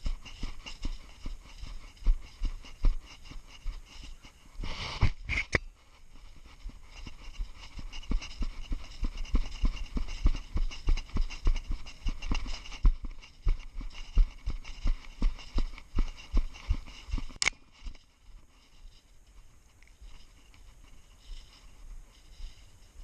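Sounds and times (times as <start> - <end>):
footsteps crunching through snow: 0.0 - 23.0
sharp clicks: 17.3 - 17.6.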